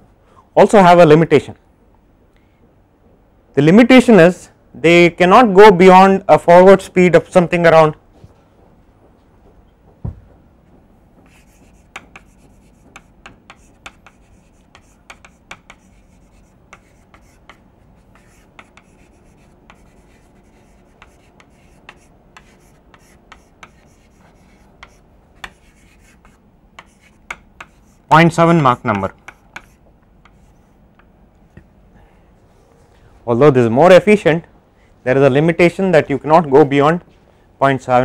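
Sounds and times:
chalk writing on blackboard: 11.2 - 30.8.

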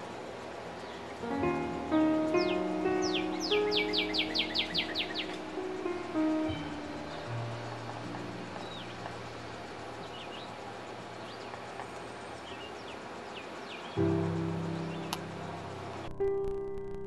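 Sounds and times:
outdoor background hiss: 0.0 - 17.0
bird chirps: 0.8 - 16.1
music chord: 1.2 - 10.3, 14.0 - 17.0.

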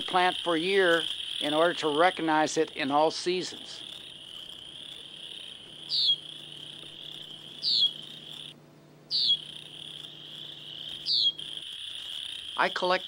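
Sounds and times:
crickets trilling: 0.0 - 13.0
short falling chirp: 7.6 - 8.0, 9.1 - 9.5, 11.0 - 11.4.

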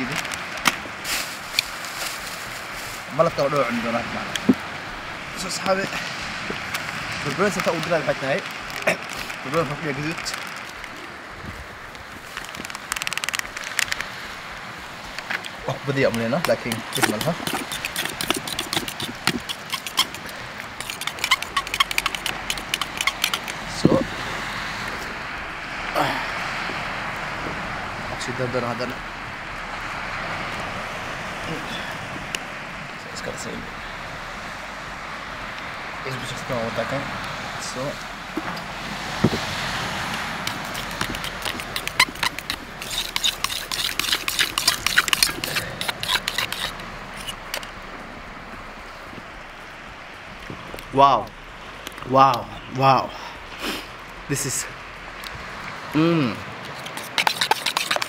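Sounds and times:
spoon scraping metal bowl: 16.4 - 23.9, 40.4 - 47.4, 56.7 - 58.0.

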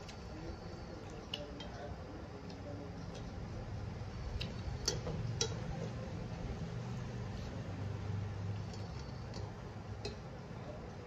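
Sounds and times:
steady low hum: 0.0 - 11.0
eating by hand clicks and smacks: 1.0 - 1.8, 4.3 - 5.7, 8.6 - 10.3.

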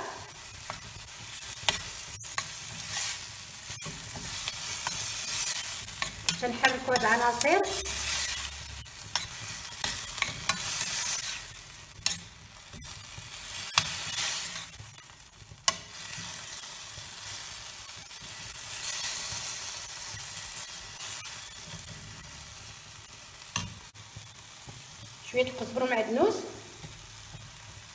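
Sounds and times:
onion and tomatoes sizzling: 0.0 - 27.9
metal spoon scraping a pan: 0.4 - 15.1, 15.7 - 17.5.

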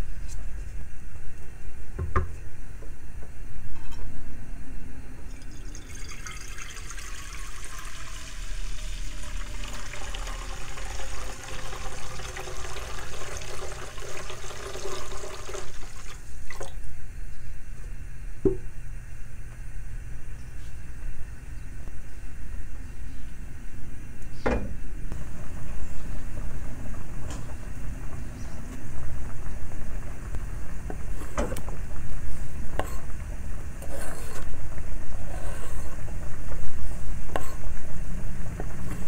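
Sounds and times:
knock: 2.0 - 2.3.

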